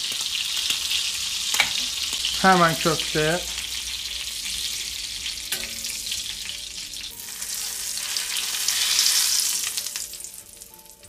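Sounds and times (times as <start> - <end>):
meat sizzling in butter: 0.0 - 11.0
metal tongs clicking against pan: 5.5 - 5.8.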